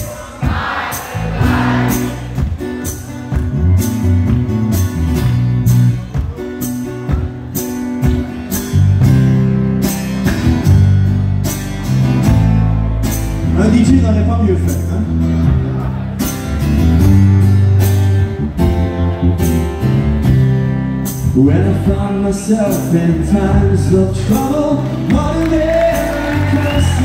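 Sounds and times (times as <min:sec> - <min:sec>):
steady drum beat: 0:00.0 - 0:05.0
acoustic guitar: 0:00.0 - 0:27.0
electric bass: 0:01.2 - 0:27.0.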